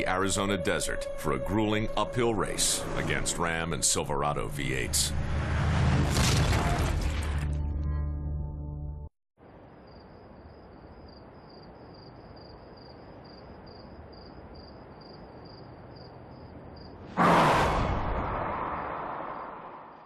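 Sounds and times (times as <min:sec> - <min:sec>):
insect chirping: 0:09.4 - 0:17.1
loud boom: 0:17.1 - 0:20.0.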